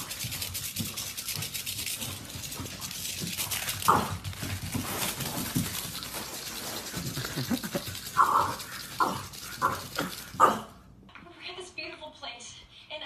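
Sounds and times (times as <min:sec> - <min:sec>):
dog panting: 0:00.0 - 0:10.4.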